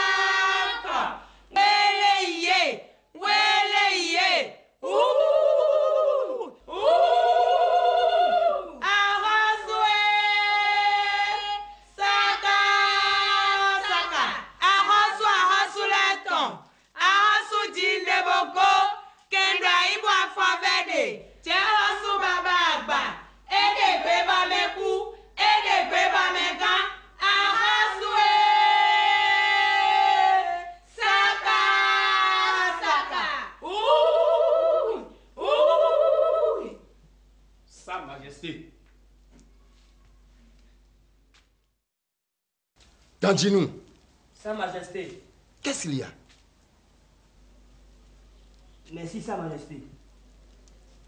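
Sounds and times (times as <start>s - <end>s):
voices chanting long held phrases: 0.0s - 37.0s
breaths between phrases: 1.2s - 1.5s.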